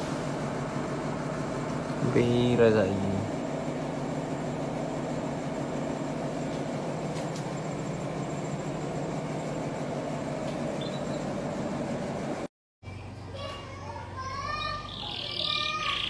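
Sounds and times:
low mechanical hum: 0.0 - 16.0
faint high-pitched chirp: 10.8 - 11.3, 14.6 - 16.0.

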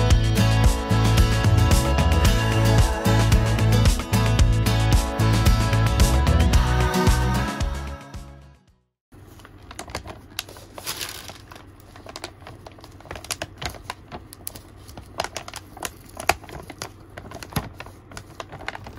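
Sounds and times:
anti-static bag crinkling: 9.2 - 18.9.

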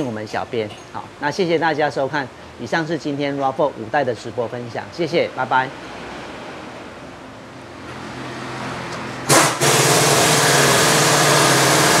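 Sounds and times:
faint workshop background noise: 0.0 - 12.0
car engine starting and running: 7.9 - 12.0.

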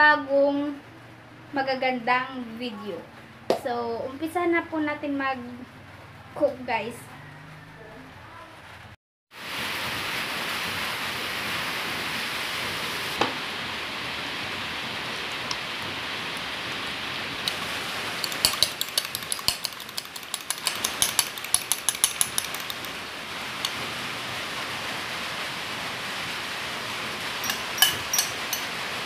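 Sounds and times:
metal fork tapping a dish: 18.2 - 22.9, 27.4 - 28.7.

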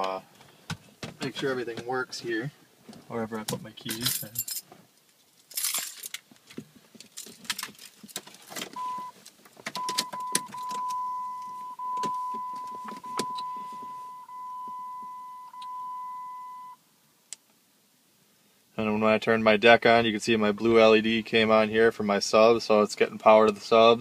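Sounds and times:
keys jangling: 3.9 - 4.6, 5.5 - 6.2
car warning chime tone: 8.8 - 9.2, 9.8 - 16.8.

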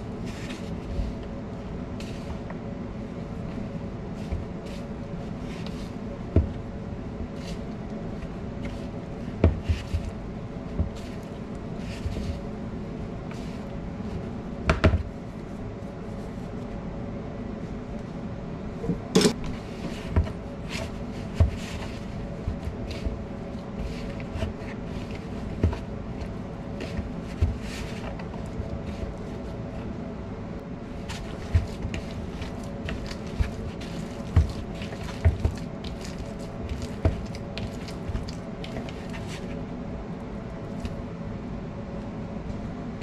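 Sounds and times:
kitchen hum: 0.0 - 43.0
hands squeezing bread dough: 31.0 - 39.6.

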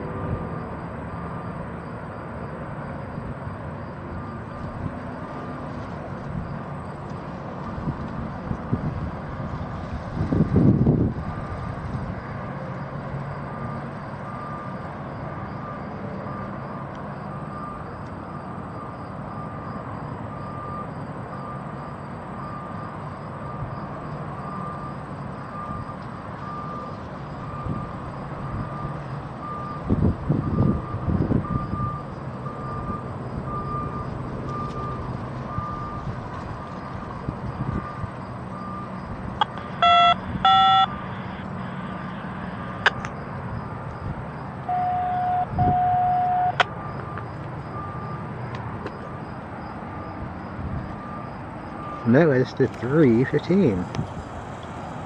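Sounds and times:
distant traffic hum: 0.0 - 55.0
reversing alarm beeping: 13.4 - 53.8
short horn toots: 44.7 - 46.6.

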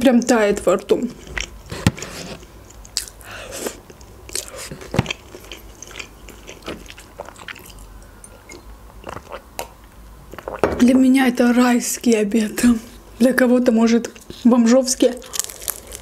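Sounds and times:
chewing and wet mouth clicks: 5.1 - 10.6.

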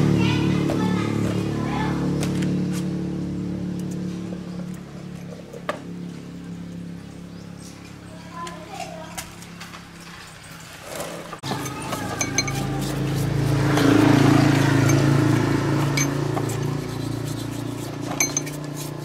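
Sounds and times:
low motor hum: 0.0 - 19.0
steel parts clinking: 11.4 - 13.0, 14.8 - 19.0
brush scrubbing in oil: 11.8 - 19.0.

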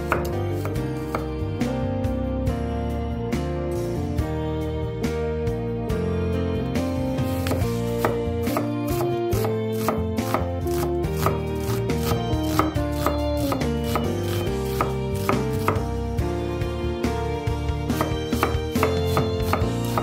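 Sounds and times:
knife slicing onion on board: 0.0 - 1.3, 7.3 - 15.9, 17.9 - 20.0
background music: 0.0 - 20.0.

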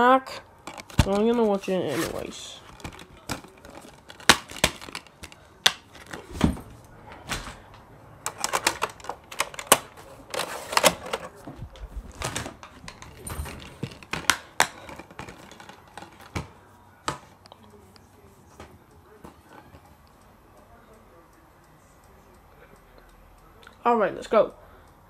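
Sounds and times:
objects clicking and knocking: 0.6 - 2.0, 2.6 - 7.6, 8.2 - 17.2.

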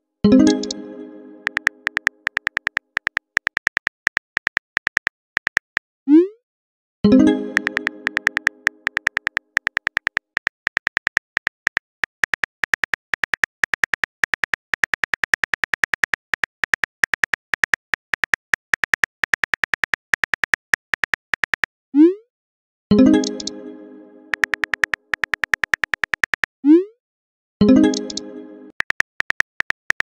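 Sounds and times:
phone keyboard typing clicks: 1.4 - 5.8, 7.6 - 21.7, 23.2 - 23.5, 24.3 - 26.5, 27.8 - 30.0.

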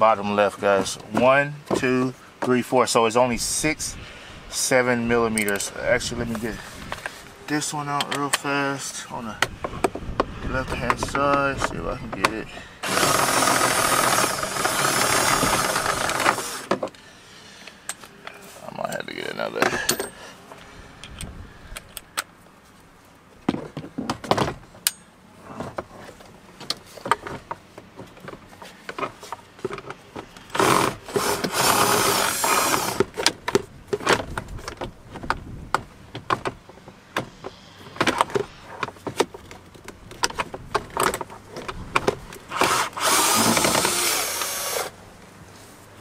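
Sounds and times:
cordless drill running: 12.8 - 16.7, 30.6 - 33.0, 42.5 - 45.0.

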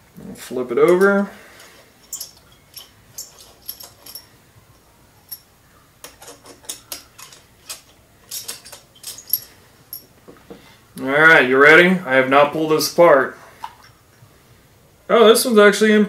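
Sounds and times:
bolt threads squeaking and clicking: 2.0 - 4.3, 5.2 - 10.0.

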